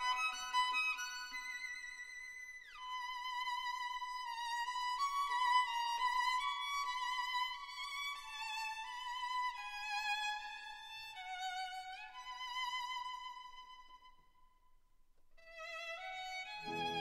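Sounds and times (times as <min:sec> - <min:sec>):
solo violin melody: 0:00.0 - 0:14.2, 0:15.4 - 0:17.0.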